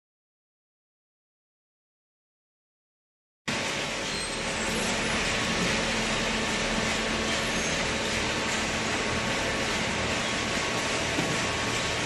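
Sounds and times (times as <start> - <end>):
baler machinery humming: 3.5 - 12.0.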